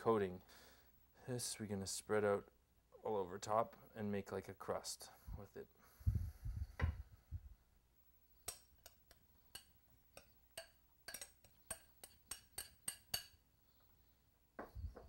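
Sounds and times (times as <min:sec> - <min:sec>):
spoon clinking against glass dishes: 0:08.4 - 0:13.4.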